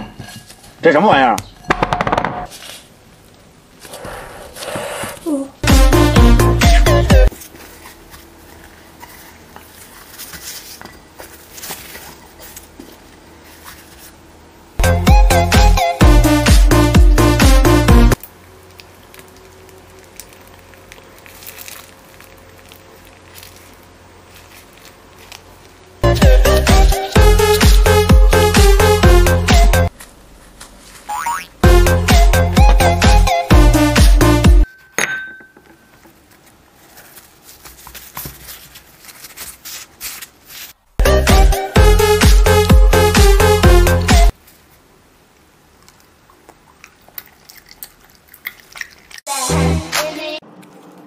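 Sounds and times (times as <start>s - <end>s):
low room hum: 16.0s - 32.1s
plastic piping bag crinkling: 18.2s - 26.0s.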